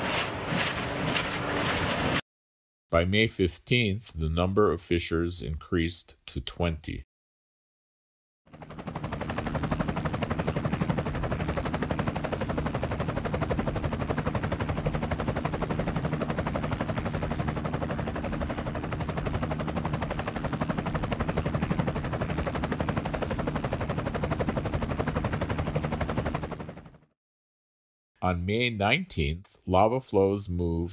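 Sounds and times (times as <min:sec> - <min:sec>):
helicopter blades chopping: 0:00.0 - 0:02.2, 0:08.5 - 0:27.0
helicopter engine hum: 0:00.0 - 0:02.2, 0:08.5 - 0:27.2.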